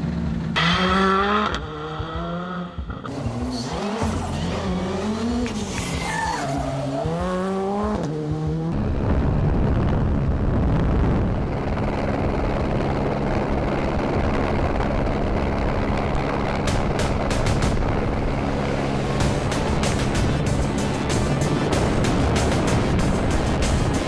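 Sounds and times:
rally car engine revving: 0:00.0 - 0:10.4, 0:11.3 - 0:24.0
dense steady rushing noise: 0:08.4 - 0:24.0.

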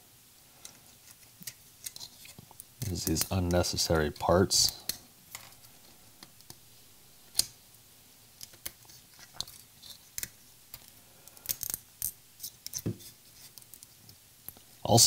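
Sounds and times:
plastic snapping and crackling: 0:08.4 - 0:12.9.

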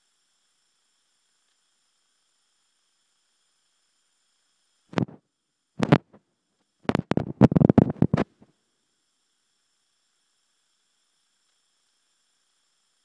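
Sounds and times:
phone microphone handling noise: 0:05.0 - 0:05.2, 0:05.8 - 0:06.2, 0:06.9 - 0:08.4.

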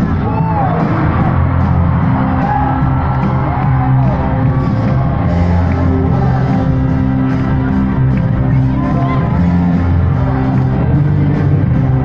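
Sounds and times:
crowd whooping: 0:00.0 - 0:07.9
loud live band music: 0:00.0 - 0:12.0.

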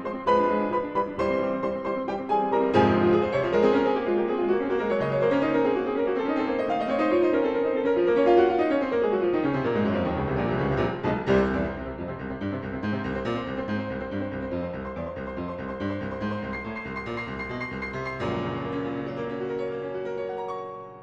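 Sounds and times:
fast piano music: 0:00.0 - 0:21.0.

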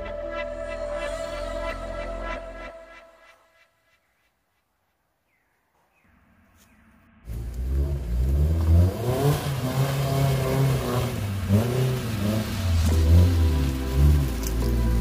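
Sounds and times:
vehicle engine revving: 0:07.2 - 0:15.0.

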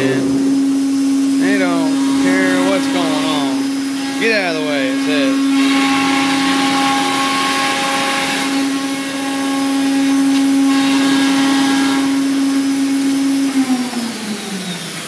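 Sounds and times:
dust extraction hiss: 0:00.0 - 0:08.7
router spindle whine: 0:00.0 - 0:15.0.

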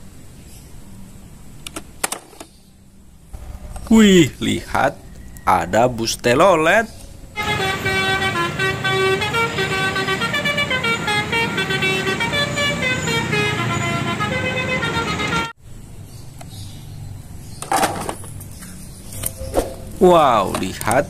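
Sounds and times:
low street traffic rumble: 0:00.0 - 0:21.0
musical air horn melody: 0:06.7 - 0:15.6.

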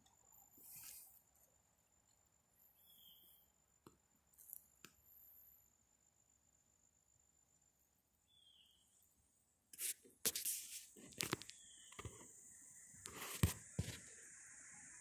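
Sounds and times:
rustles and scrapes: 0:00.5 - 0:01.3, 0:09.8 - 0:12.3, 0:13.0 - 0:14.1.

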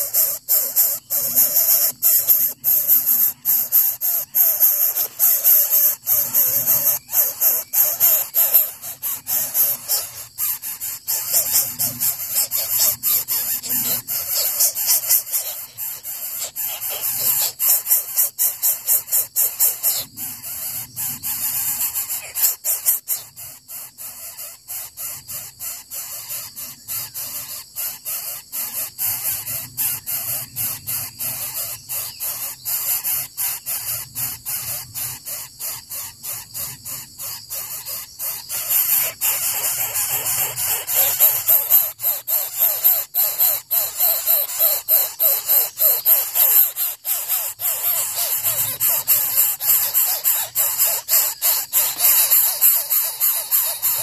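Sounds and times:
steady high hiss: 0:00.0 - 0:23.4, 0:37.2 - 0:54.0
nestlings rasping calls: 0:00.0 - 0:54.0.

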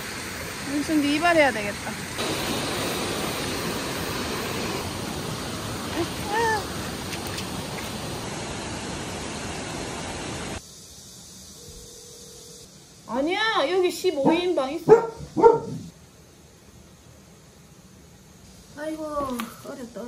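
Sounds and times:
stream rushing over rocks: 0:02.2 - 0:10.6.

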